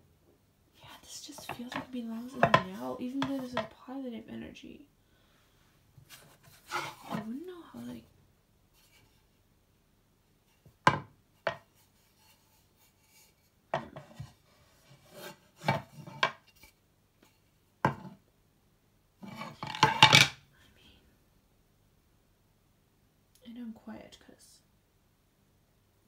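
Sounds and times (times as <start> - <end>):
wooden board knocking on counter: 1.5 - 3.7, 17.8 - 18.1
board scraping on counter: 6.1 - 7.3, 10.9 - 16.7, 19.2 - 20.3.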